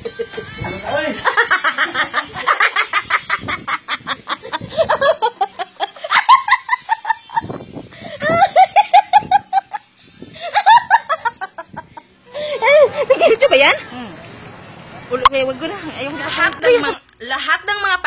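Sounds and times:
woman laughing hard: 1.2 - 7.5, 8.1 - 9.8, 10.4 - 13.4.

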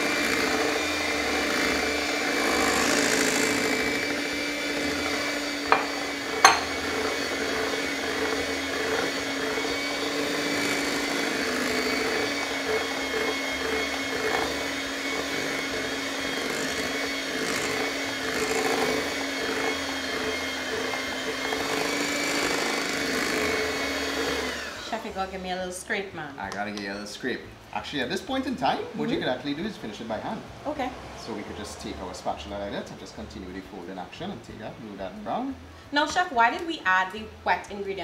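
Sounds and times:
electric hand mixer whine: 0.0 - 26.0.

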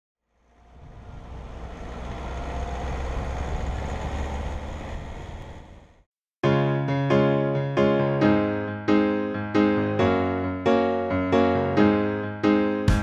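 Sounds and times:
vehicle engine and tyres rumbling: 0.2 - 6.1.

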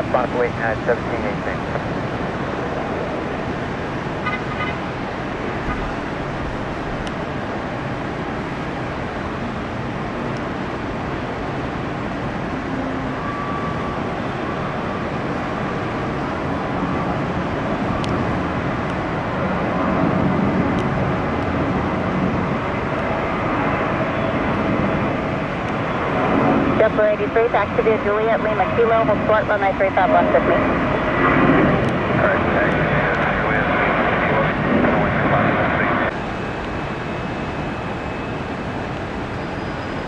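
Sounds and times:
road traffic: 0.0 - 34.6
airliner engines rumbling: 0.0 - 40.0.

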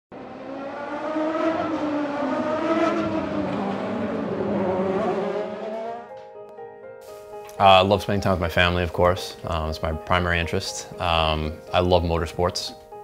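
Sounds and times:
race car engine revving: 0.1 - 6.1.

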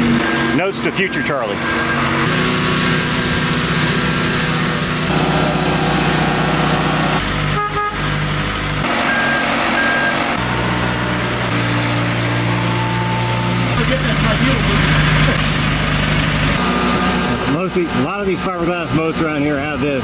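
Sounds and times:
engine and hydraulic winches running: 0.0 - 20.0
short high beeps: 9.1 - 10.2.

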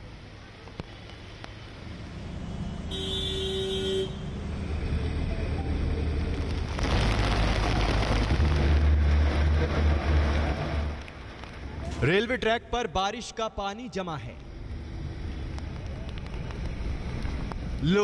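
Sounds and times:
vehicle noise: 0.0 - 18.0
heavy vehicle passing close: 4.2 - 12.2.

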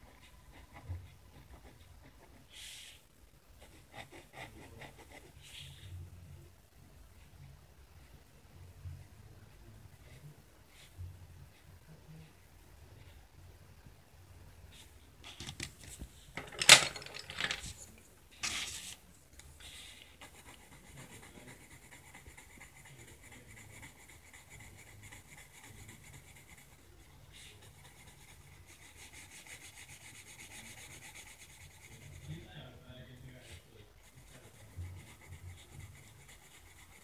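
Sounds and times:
pencil scratching on paper: 0.0 - 3.0, 3.6 - 5.9, 19.6 - 37.0.

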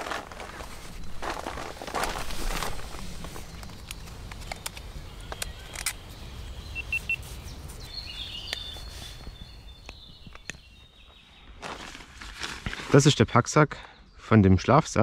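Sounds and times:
small clicks and rustles: 0.0 - 6.0
small bird chirping: 3.4 - 11.6.

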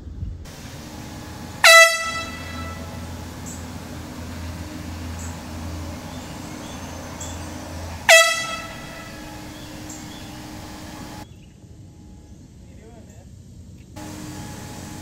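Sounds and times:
handheld air horn blasts: 0.5 - 11.2.

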